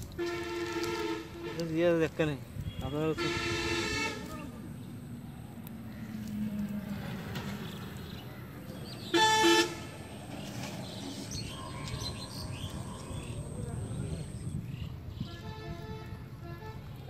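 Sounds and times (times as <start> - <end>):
vehicle horn toot: 0.2 - 1.8, 2.6 - 4.4, 9.1 - 9.9, 15.2 - 16.9.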